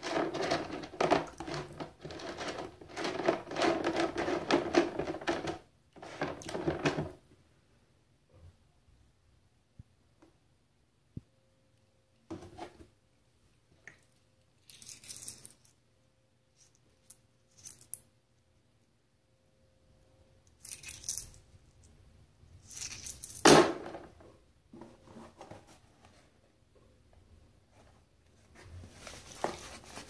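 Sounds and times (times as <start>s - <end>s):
handling noises: 0.0s - 7.2s, 27.7s - 30.0s.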